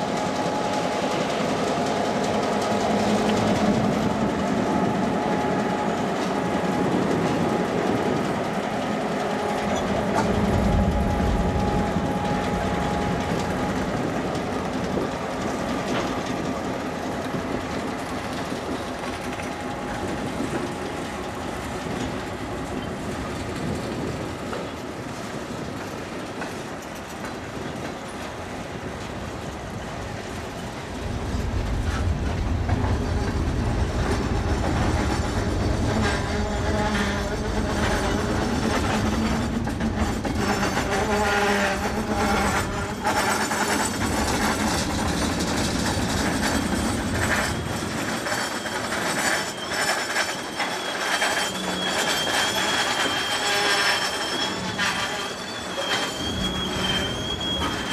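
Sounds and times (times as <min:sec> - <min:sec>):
heavy train rumble: 0:00.0 - 0:57.9
wheels clicking over rail joints: 0:00.0 - 0:57.9
wheels squealing: 0:31.9 - 0:57.9.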